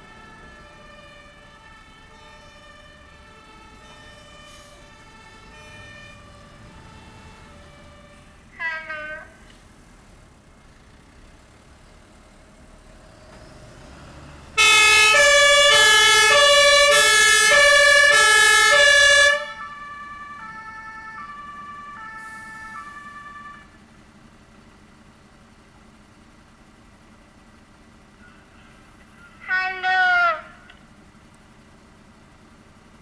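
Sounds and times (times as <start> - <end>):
faint two-tone siren: 0.0 - 9.4, 14.6 - 23.8, 28.1 - 30.7
fire engine two-tone siren: 0.0 - 9.5, 14.0 - 23.9, 28.1 - 30.8.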